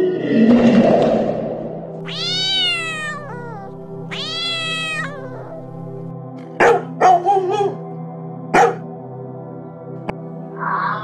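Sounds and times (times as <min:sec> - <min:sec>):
background music: 0:00.0 - 0:11.0
cat meowing: 0:02.0 - 0:06.0
dog barking: 0:06.6 - 0:07.8, 0:08.5 - 0:08.9.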